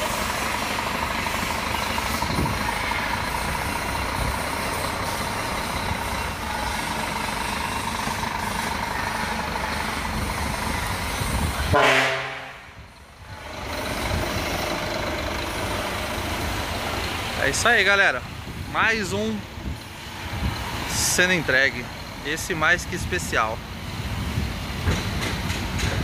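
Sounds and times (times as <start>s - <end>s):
truck diesel engine idling: 0.0s - 26.0s
truck horn blast: 11.6s - 12.8s.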